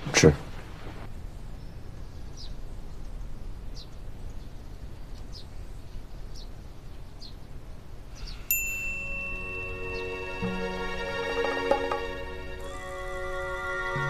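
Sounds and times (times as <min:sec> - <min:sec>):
low steady hum: 0:00.0 - 0:14.0
bright chime-like note: 0:08.5 - 0:10.9
background music: 0:09.2 - 0:14.0.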